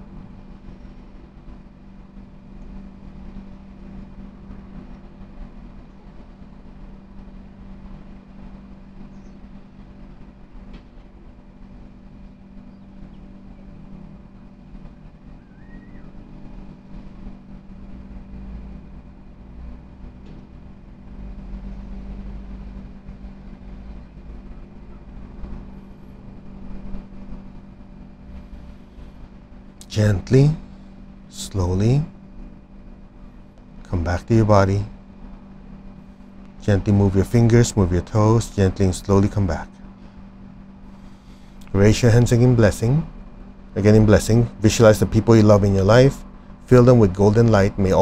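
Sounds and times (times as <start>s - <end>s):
low background hum and rumble: 0.0s - 48.0s
faint chirp: 9.1s - 9.5s, 12.7s - 13.3s, 15.4s - 16.2s.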